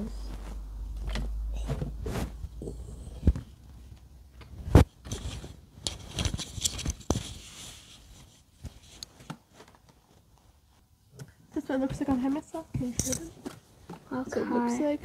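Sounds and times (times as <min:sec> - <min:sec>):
scarf rubbing on microphone: 0:00.2 - 0:00.7, 0:02.0 - 0:02.6.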